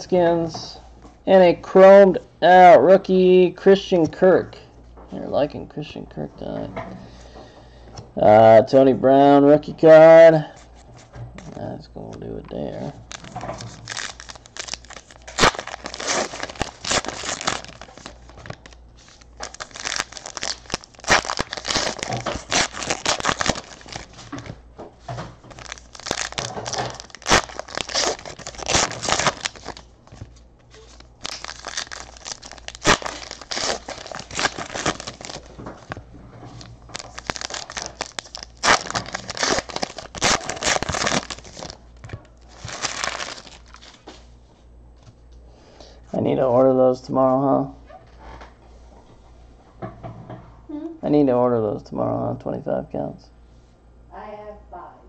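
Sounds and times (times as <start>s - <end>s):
card pack wrappers tearing: 12.8s - 24.5s, 25.5s - 36.0s, 36.8s - 41.8s, 42.4s - 44.0s.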